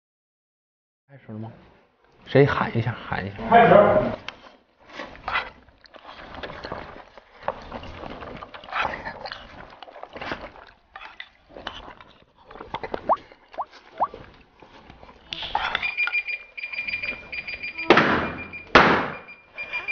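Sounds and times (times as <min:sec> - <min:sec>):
people slurping noodles: 0:03.4 - 0:15.8.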